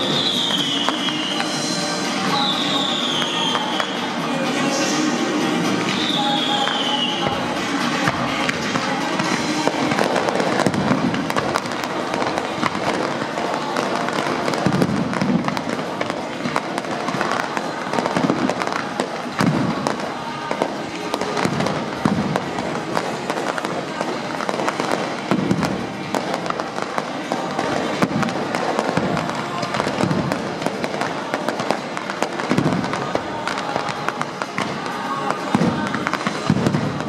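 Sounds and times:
fireworks crackling and popping: 0.0s - 37.0s
heavy firework thumps: 8.0s - 37.0s.

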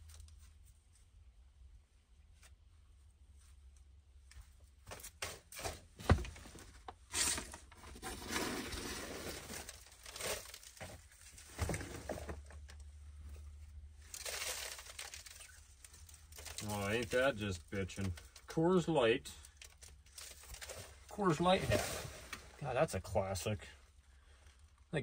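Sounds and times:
debris rustling and crinkling: 4.3s - 23.4s.

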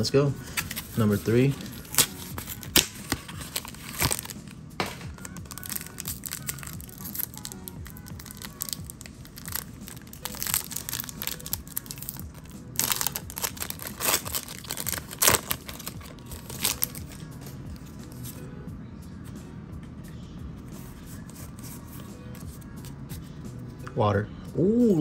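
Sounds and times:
faint background music: 0.0s - 25.0s
foil wrapper crinkling and tearing: 0.5s - 17.2s.

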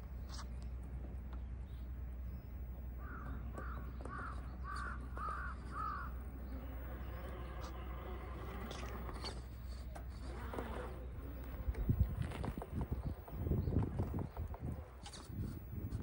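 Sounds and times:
bird calling: 1.6s - 9.1s.

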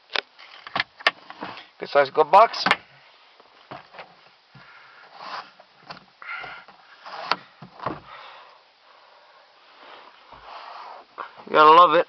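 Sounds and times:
breathy sniffs: 8.1s - 11.4s.

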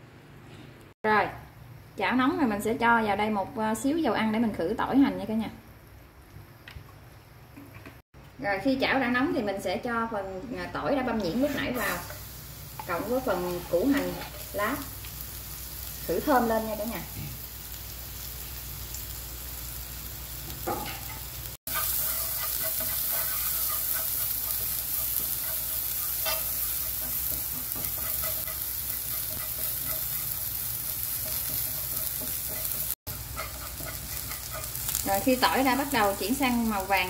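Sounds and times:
garlic sizzling in hot oil: 10.8s - 37.0s
chopsticks stirring in pan: 11.2s - 15.2s, 20.9s - 37.0s.

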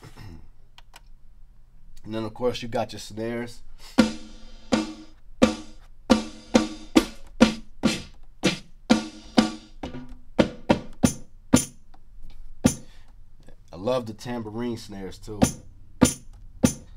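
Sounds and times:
sampled snare drum hits: 4.0s - 11.8s, 12.6s - 12.9s, 15.4s - 16.9s.

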